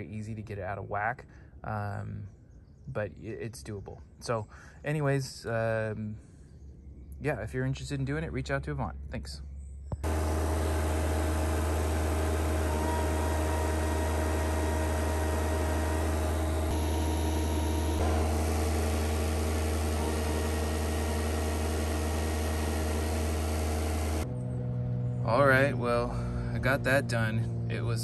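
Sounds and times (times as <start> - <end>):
loader engine humming: 9.9 - 28.0.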